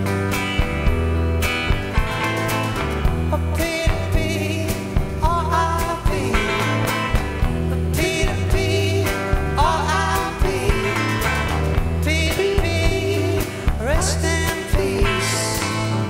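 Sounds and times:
bass: 0.0 - 16.0
electric guitar: 0.0 - 16.0
steady drumbeat: 0.0 - 16.0
man singing: 3.2 - 16.0.

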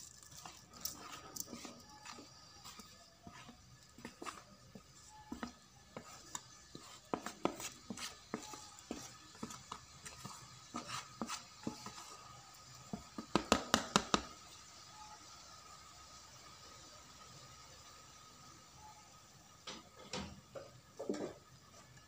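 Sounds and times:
spatula scraping a metal wok: 0.0 - 12.4.

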